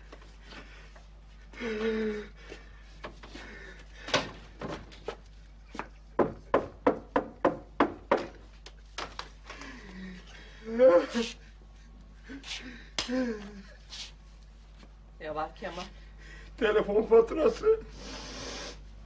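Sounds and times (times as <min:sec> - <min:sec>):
knocking on wooden door: 0:06.2 - 0:08.4
person groaning: 0:10.6 - 0:11.4.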